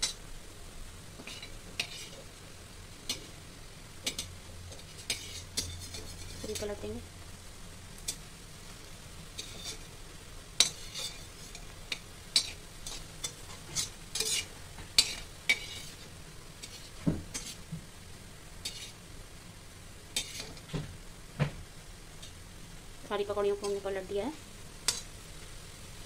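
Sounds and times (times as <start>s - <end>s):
oil sizzling: 0.0s - 26.0s
metal spatula scraping a pan: 1.2s - 2.3s, 4.0s - 6.8s, 9.3s - 9.9s, 10.6s - 17.6s, 18.6s - 19.0s, 20.1s - 20.7s, 24.8s - 25.2s.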